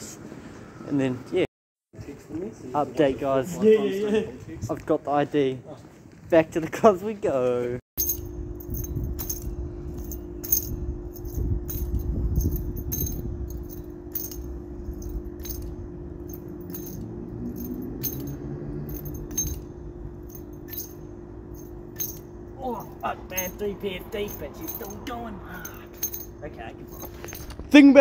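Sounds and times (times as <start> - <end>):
keys jingling: 8.0 - 27.7
steady low hum: 8.0 - 28.0.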